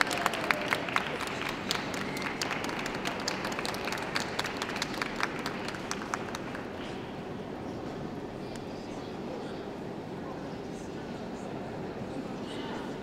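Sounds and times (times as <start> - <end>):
audience applause: 0.0 - 6.8.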